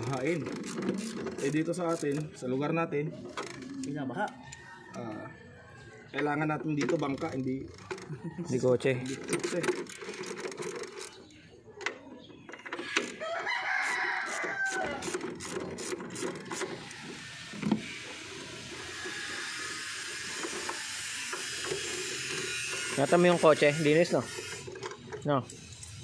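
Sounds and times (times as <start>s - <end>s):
ratchet wrench rattling: 0.0s - 2.4s, 6.3s - 11.2s, 14.3s - 26.0s
rooster crowing: 4.3s - 6.1s, 8.1s - 9.1s, 13.1s - 15.2s, 18.7s - 21.2s.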